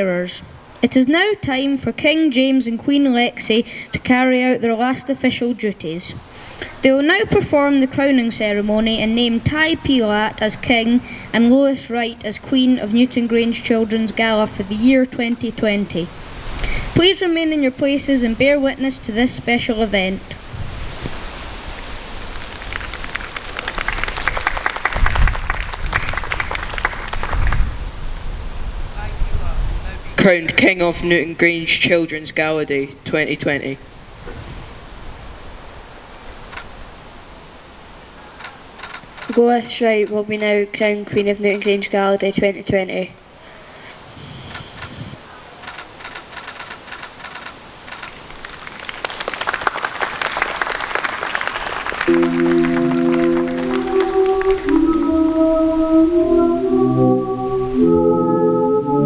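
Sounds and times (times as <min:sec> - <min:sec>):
people applauding: 0:22.3 - 0:27.7, 0:48.0 - 0:55.3
people clapping: 0:22.3 - 0:27.7, 0:48.0 - 0:55.3.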